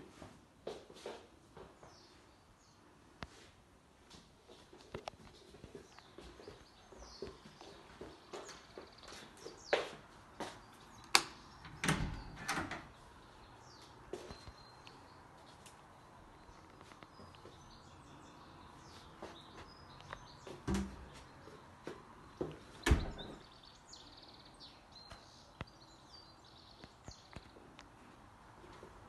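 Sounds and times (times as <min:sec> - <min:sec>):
small birds chirping: 0:01.6 - 0:03.5, 0:04.5 - 0:28.4.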